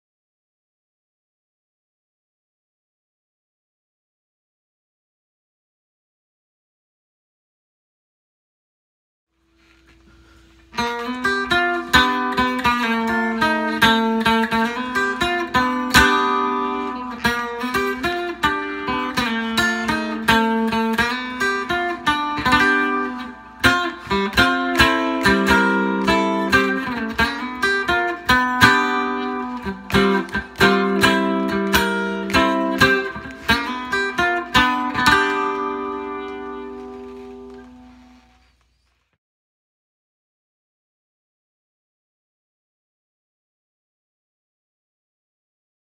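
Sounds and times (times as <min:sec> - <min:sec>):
twangy electric guitar picking: 0:10.8 - 0:37.5.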